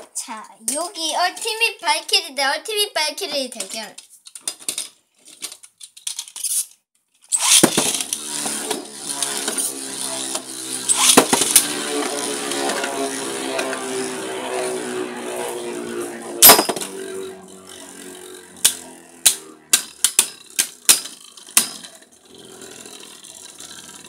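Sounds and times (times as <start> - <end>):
spinning tops launched: 7.3 - 24.0
spinning tops whirring: 7.3 - 24.0.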